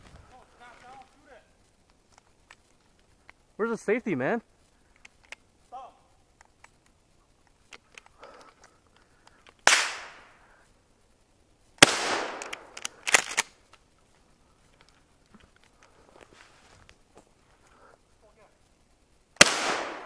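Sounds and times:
sharp cracks: 4.6 - 10.5, 11.8 - 14.0, 19.3 - 20.0
loud gunshots: 9.7 - 10.2, 11.8 - 12.6, 19.4 - 20.0.

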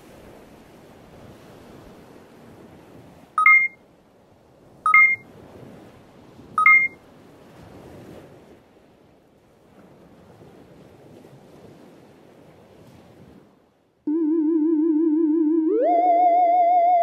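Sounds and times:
two-tone electronic beeps: 3.4 - 3.8, 4.9 - 5.2, 6.6 - 7.0, 14.1 - 17.0.

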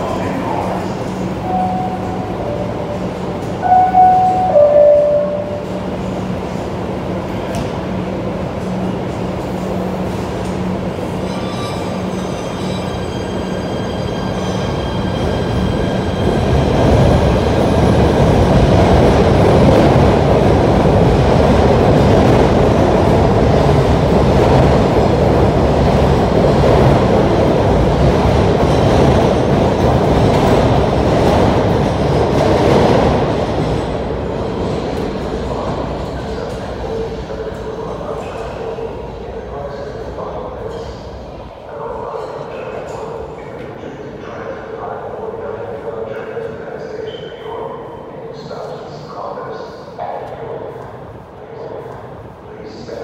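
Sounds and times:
train wheels on rails: 0.0 - 38.8
train whining tones: 1.4 - 6.3.

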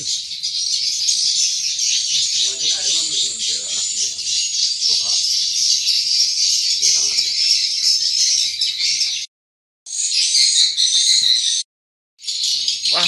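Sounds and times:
swiftlets twittering: 0.0 - 7.6.

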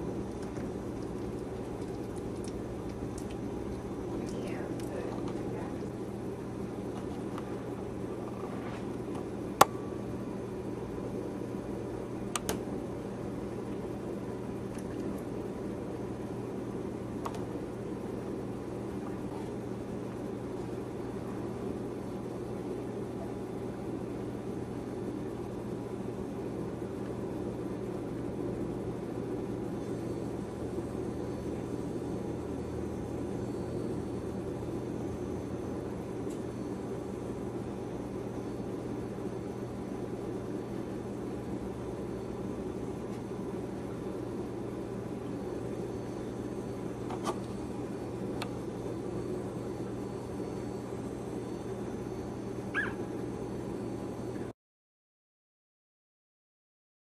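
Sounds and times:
low mechanical hum: 0.0 - 54.6.

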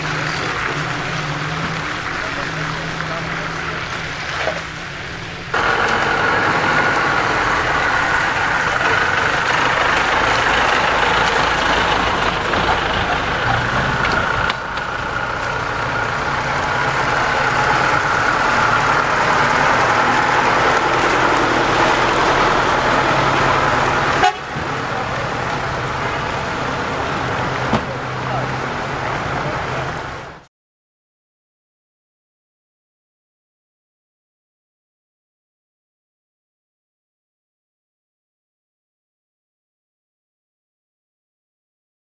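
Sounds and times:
vehicle engine running: 0.0 - 30.4.

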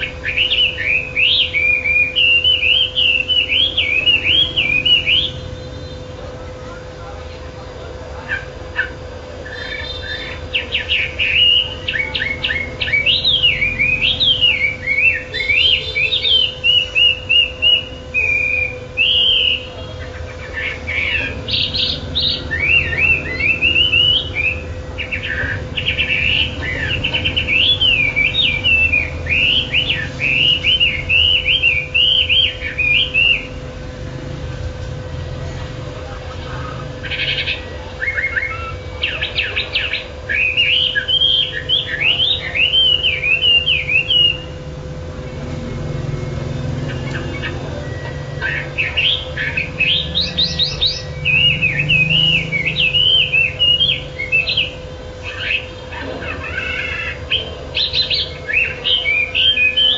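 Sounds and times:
songbird chirping and trilling: 0.0 - 59.9.

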